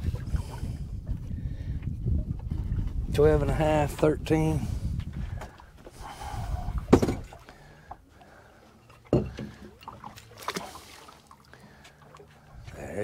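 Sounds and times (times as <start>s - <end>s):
water washing against hull: 0.0s - 13.0s
sharp knocks on boat: 6.9s - 7.3s, 9.1s - 9.8s.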